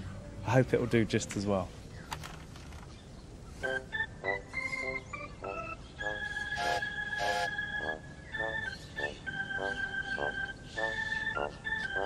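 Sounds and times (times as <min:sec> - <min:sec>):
organ-toned music: 0:03.6 - 0:12.0.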